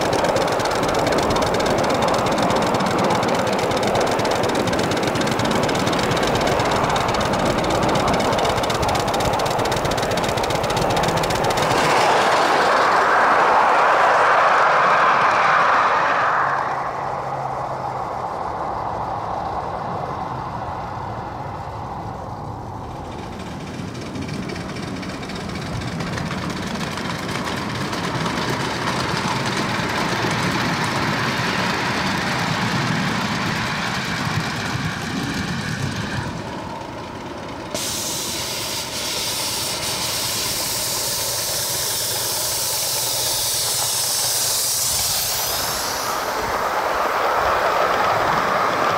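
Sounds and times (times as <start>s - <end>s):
steam hissing from locomotive: 0.0s - 20.9s, 37.6s - 48.9s
train wheels running on rails: 0.0s - 48.9s.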